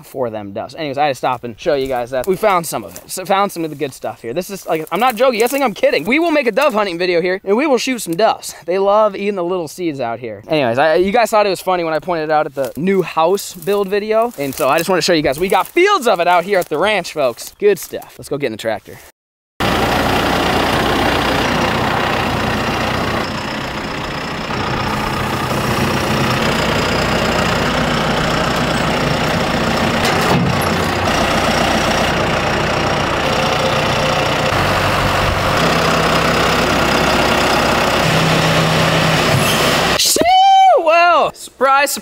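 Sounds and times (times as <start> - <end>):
tractor diesel engine running: 0.8 - 7.2, 19.6 - 40.0.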